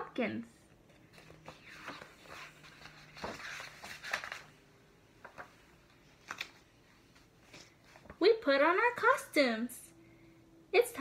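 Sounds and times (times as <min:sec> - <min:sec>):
book pages rustling: 0:00.8 - 0:08.2.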